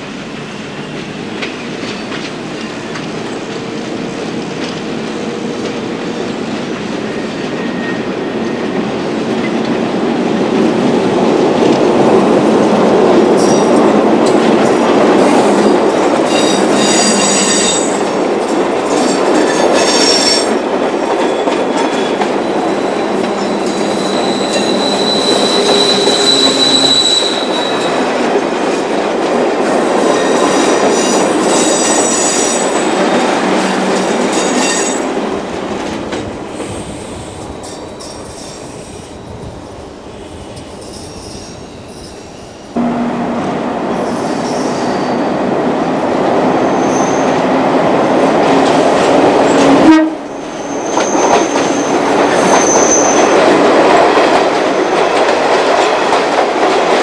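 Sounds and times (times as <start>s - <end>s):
electric train rumble: 0.0s - 57.0s
wheels squealing: 23.0s - 28.0s.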